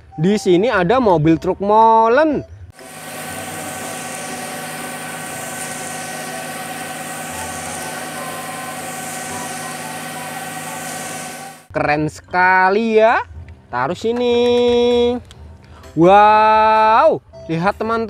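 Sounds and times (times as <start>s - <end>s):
concrete pouring hiss: 2.8s - 11.7s
diesel engine running: 2.8s - 11.7s.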